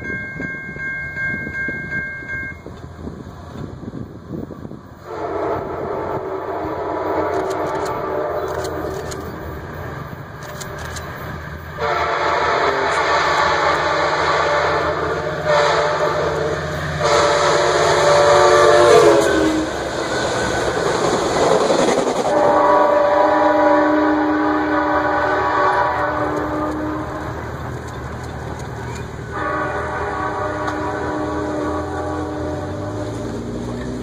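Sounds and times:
rumble and clatter of train cars: 0.0s - 34.0s
train horn blasts: 5.0s - 8.9s, 11.7s - 19.9s, 22.2s - 27.5s, 29.2s - 33.7s
diesel engine drone: 6.0s - 34.0s.

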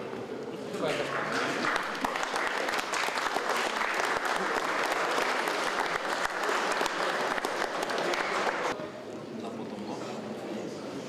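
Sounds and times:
crowd applause: 1.0s - 8.8s.

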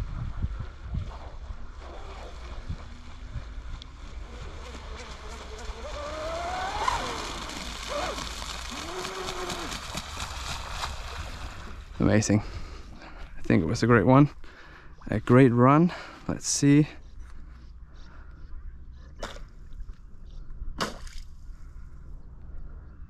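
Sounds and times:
electric boat motor whining: 1.8s - 9.8s.

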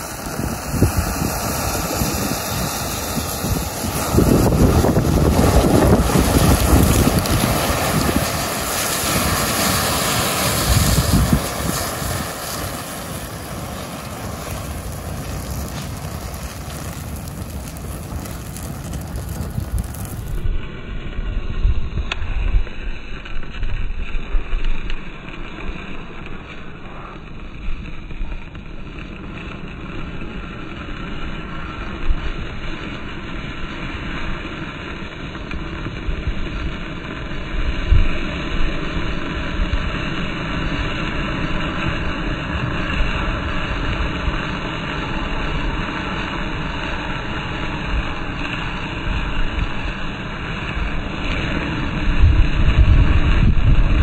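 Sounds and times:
matches fizzing and hissing: 0.0s - 20.5s
wind rumble on microphone: 0.0s - 54.0s.

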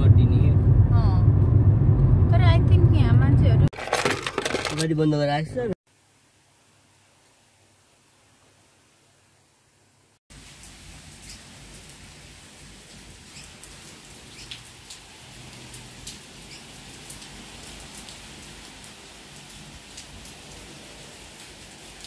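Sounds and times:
heavy rain: 10.3s - 22.0s
raindrops ticking on surfaces: 10.3s - 22.0s.

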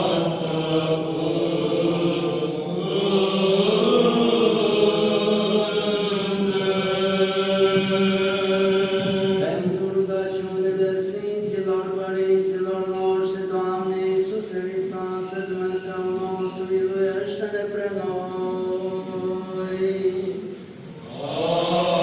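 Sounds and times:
choir chanting long notes: 0.0s - 9.7s, 18.2s - 22.0s.

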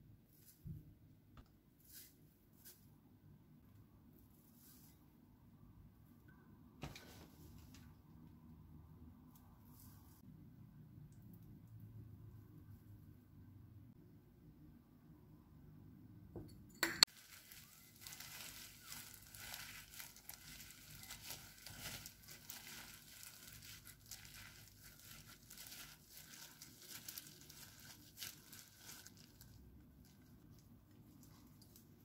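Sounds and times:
plastic gloves crinkling: 17.1s - 32.0s.

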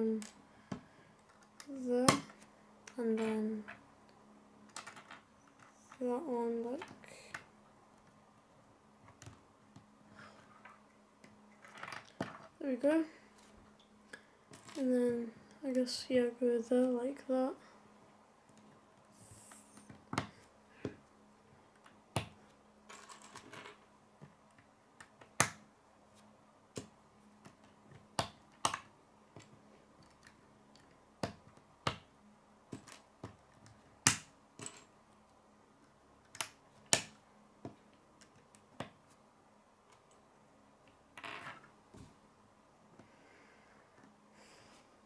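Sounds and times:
plastic pieces snapping together: 26.7s - 32.1s, 36.2s - 39.0s.

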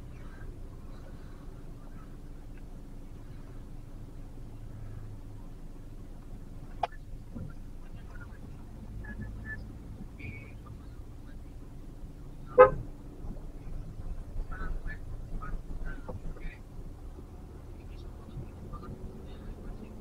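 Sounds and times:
car cabin hum: 0.0s - 20.0s
car horn toot: 12.5s - 12.9s.

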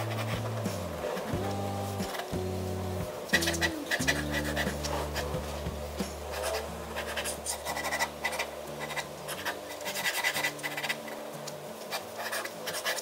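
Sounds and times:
pen scratching on paper: 6.3s - 11.1s, 11.9s - 13.0s.

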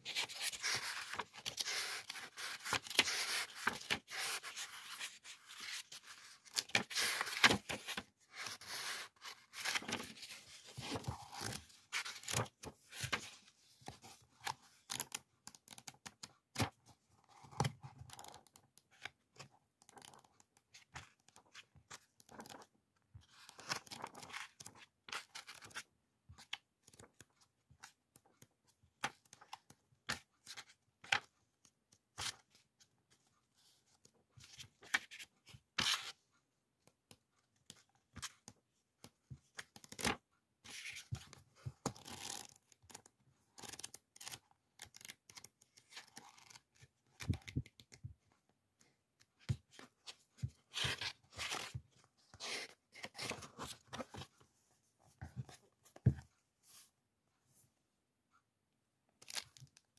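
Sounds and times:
paper sheets rustling and flicking: 0.1s - 13.3s.

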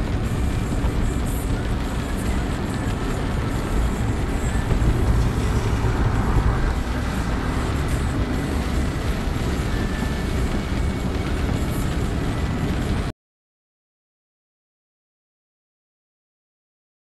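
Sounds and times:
car engine rumble: 0.0s - 13.1s
tyres on wet road: 0.0s - 13.1s.

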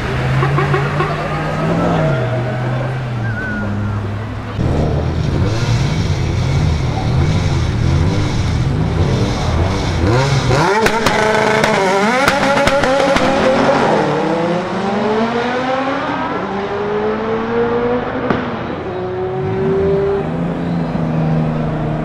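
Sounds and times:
engines accelerating hard: 0.0s - 22.0s
sharp exhaust pops: 10.7s - 13.5s.

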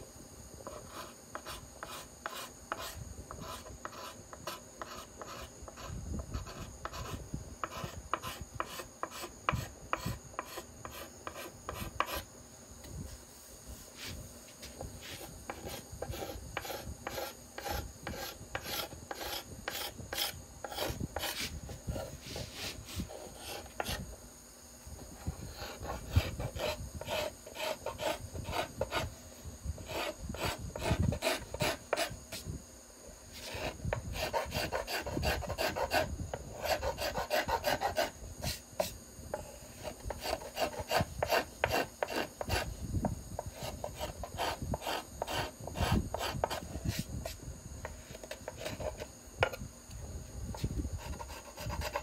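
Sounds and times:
steel scraper shaving wood: 15.6s - 21.4s.

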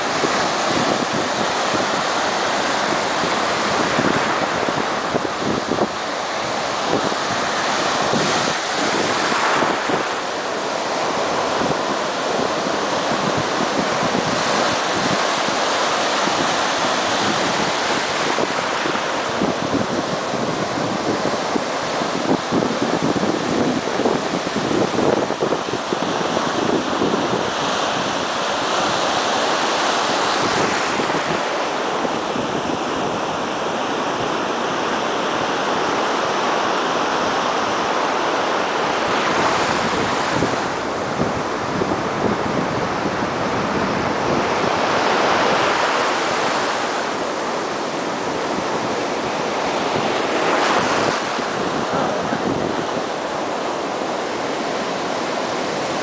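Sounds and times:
ocean surf breaking: 0.0s - 56.0s
water rushing in shallows: 0.0s - 56.0s.

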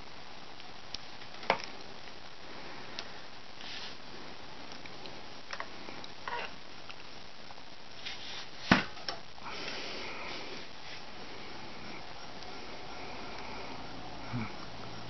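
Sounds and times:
soft rustling: 1.2s - 7.1s, 7.9s - 8.9s, 9.5s - 14.1s.

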